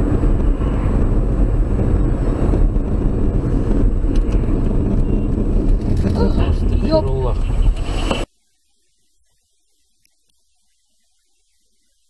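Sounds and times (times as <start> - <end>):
car engine and tyres rumbling: 0.0 - 8.3.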